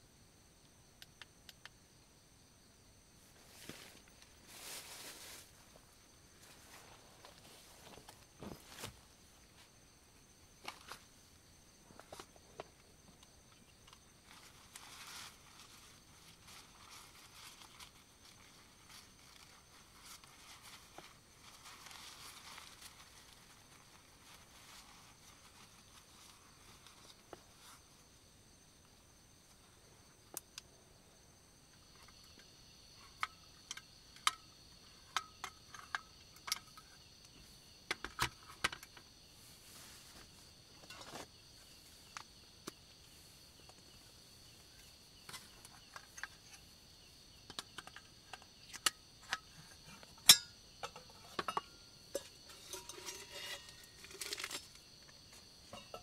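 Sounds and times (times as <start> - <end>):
night insects chorus: 0.0 - 56.0
metal cookware clinking: 50.2 - 54.6.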